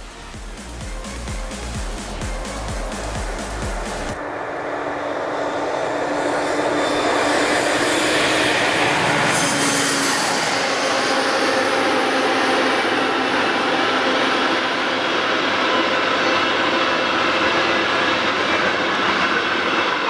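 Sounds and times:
diesel locomotive engine drone: 0.0 - 20.0.

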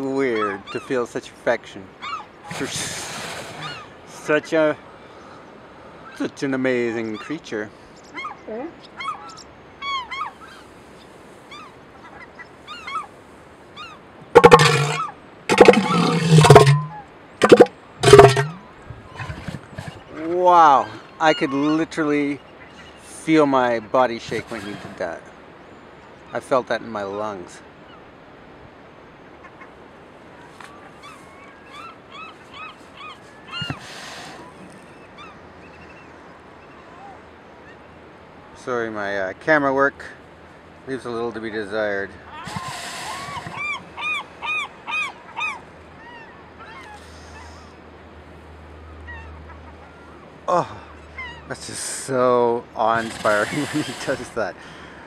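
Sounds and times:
gulls calling: 0.0 - 28.1, 29.2 - 55.0
elephant seal threat call: 2.0 - 4.0, 14.2 - 20.2, 24.2 - 25.0, 31.8 - 35.3, 42.3 - 47.7, 52.8 - 54.4.

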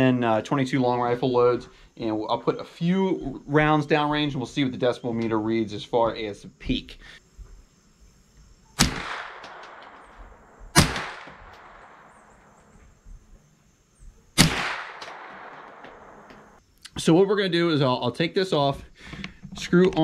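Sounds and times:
rifle shots with echo: 8.8 - 12.2, 14.4 - 16.3.

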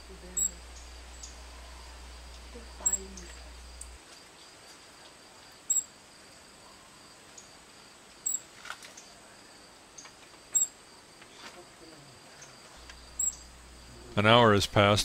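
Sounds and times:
faint insect drone: 0.0 - 15.0
bird chip calls: 0.2 - 3.8, 12.8 - 13.7.

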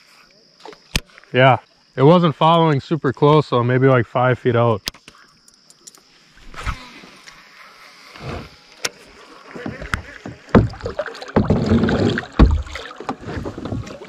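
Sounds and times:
water splashing: 9.0 - 14.0
hollow knocks on plastic kayak hull: 9.6 - 14.0.

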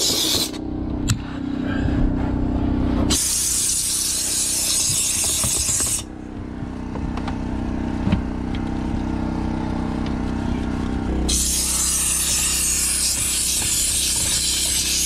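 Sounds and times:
steam cleaner hissing: 0.0 - 0.6, 3.1 - 6.1, 11.3 - 15.0
steady low hum: 0.0 - 15.0.

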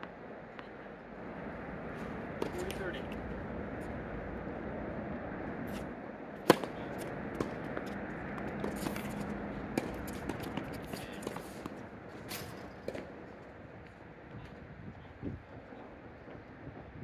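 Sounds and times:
racket striking tennis ball: 2.0 - 3.3, 5.6 - 13.3
ball bouncing on hard court: 6.4 - 11.8.

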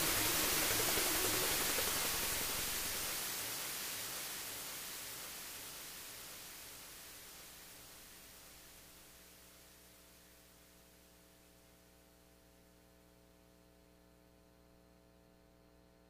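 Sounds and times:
hissy synthesizer noise: 0.0 - 10.4.

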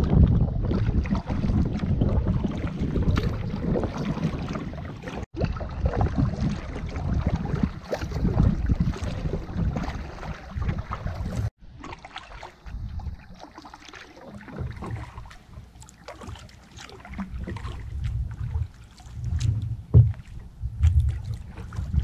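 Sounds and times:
wind buffeting microphone: 0.0 - 11.5, 12.6 - 13.4, 17.2 - 22.0
water lapping against canoe hull: 0.0 - 22.0.

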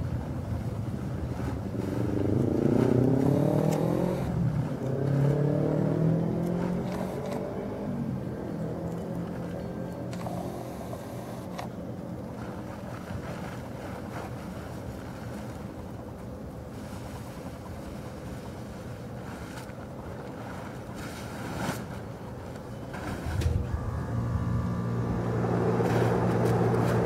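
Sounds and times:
tarp dragging over sand: 1.1 - 7.2, 18.6 - 22.2, 22.9 - 27.0
steady low rumble: 23.0 - 27.0.

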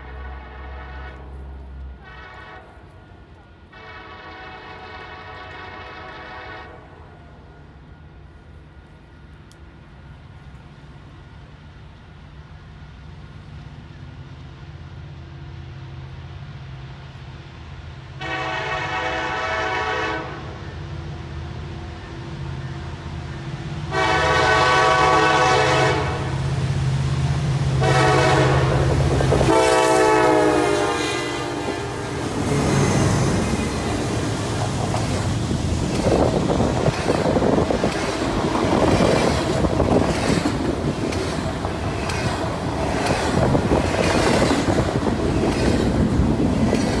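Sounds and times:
train air horn blasts: 0.0 - 3.1, 3.7 - 7.0, 18.2 - 20.7, 23.9 - 26.4, 27.8 - 34.1
diesel locomotive rumble: 0.0 - 47.0
train wheels clicking over rail joints: 31.7 - 47.0.

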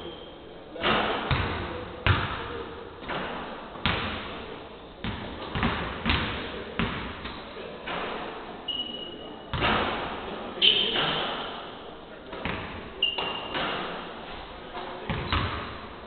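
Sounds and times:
basketballs bouncing on wooden court: 0.8 - 4.4, 5.0 - 8.1, 9.5 - 11.5, 12.3 - 13.9, 15.0 - 15.9.

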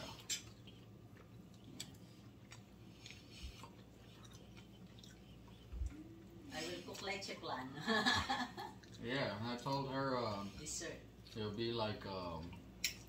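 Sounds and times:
faint chewing: 0.0 - 7.2, 8.6 - 11.6
low room hum: 0.0 - 13.0.

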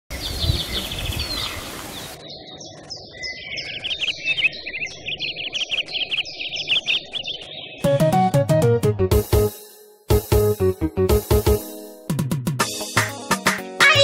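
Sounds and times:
birds chirping and singing: 0.1 - 8.4.

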